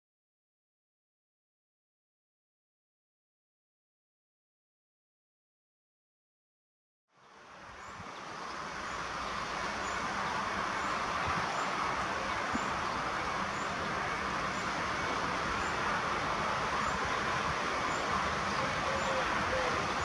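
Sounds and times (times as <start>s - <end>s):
distant freight train rumble: 7.7s - 20.0s.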